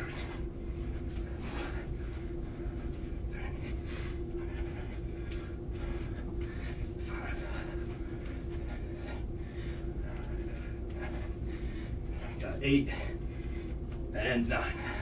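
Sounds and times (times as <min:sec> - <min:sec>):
man breathing hard: 0:00.0 - 0:15.0
steady low hum: 0:00.0 - 0:15.0.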